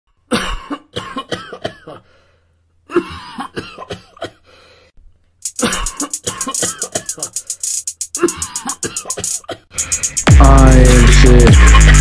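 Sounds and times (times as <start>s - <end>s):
person coughing: 0.3s - 2.1s, 2.9s - 4.4s, 5.5s - 7.4s, 8.2s - 9.7s.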